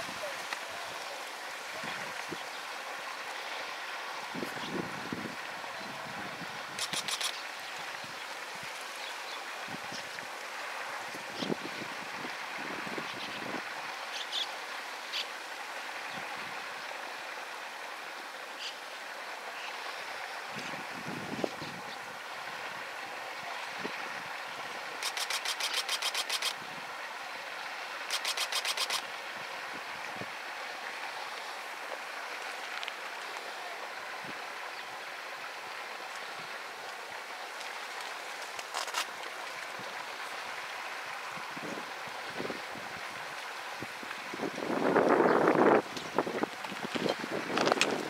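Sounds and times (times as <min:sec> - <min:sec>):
stream rushing: 0:00.0 - 0:48.0
sharp clicks: 0:06.8 - 0:07.4, 0:25.0 - 0:26.6, 0:28.1 - 0:29.0.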